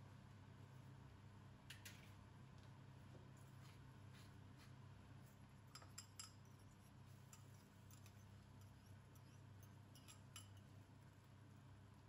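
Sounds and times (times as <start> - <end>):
low steady hum: 0.0 - 12.0
kitchen utensils clicking and tapping: 9.1 - 10.6.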